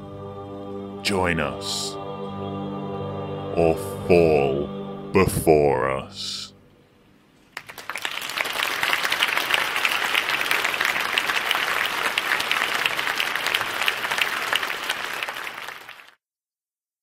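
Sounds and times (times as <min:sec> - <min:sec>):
crowd applauding: 0:07.6 - 0:16.2.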